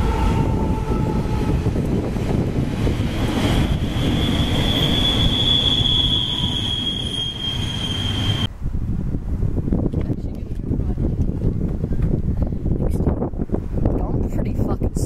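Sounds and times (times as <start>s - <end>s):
train wheels rumbling on rails: 0.0s - 8.5s
high-pitched wheel squeal: 3.2s - 8.5s.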